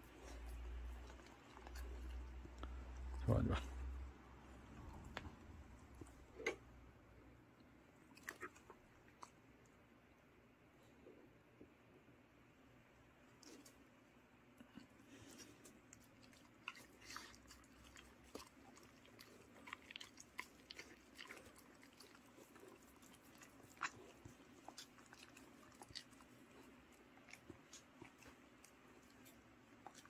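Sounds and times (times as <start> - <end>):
dogs chewing: 0.0 - 6.6, 14.7 - 30.0.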